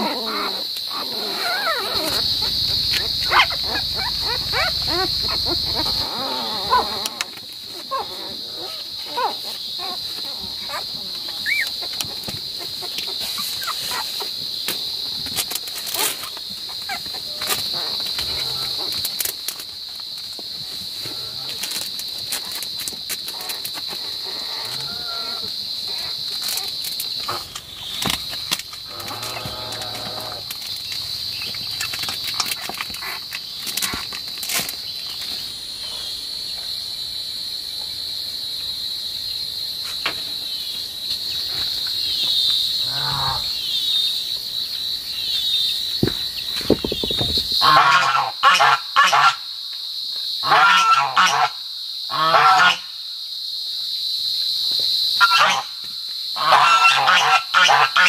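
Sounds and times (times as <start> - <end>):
high-pitched insect drone: 0.0 - 19.6
geese honking: 47.6 - 49.4, 55.2 - 55.7, 56.4 - 58.0.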